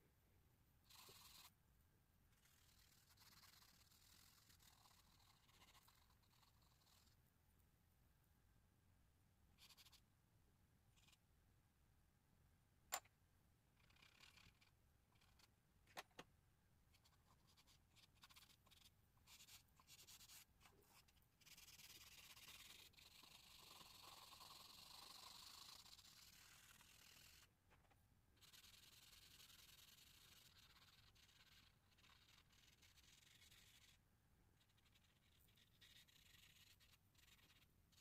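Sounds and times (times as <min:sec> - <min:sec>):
charcoal rubbing on paper: 0:00.9 - 0:01.5, 0:02.3 - 0:07.2, 0:16.9 - 0:27.5, 0:28.4 - 0:34.0, 0:34.6 - 0:38.0.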